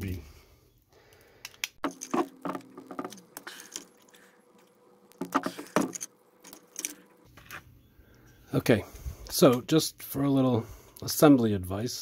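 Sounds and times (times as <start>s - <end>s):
plastic parts knocking: 1.8s - 3.9s, 5.1s - 6.6s
screws clicking and rattling: 5.5s - 7.0s.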